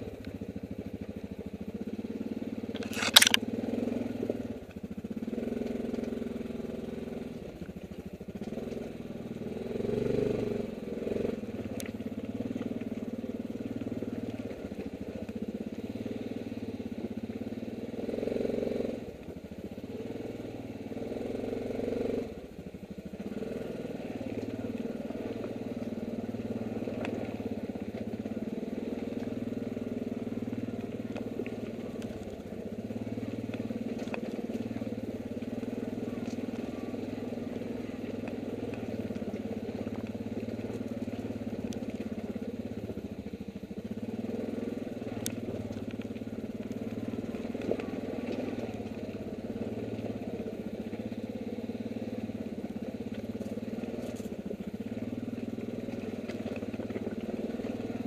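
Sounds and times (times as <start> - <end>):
quad bike engine running: 0.0 - 58.0
sharp clicks: 2.7 - 3.4.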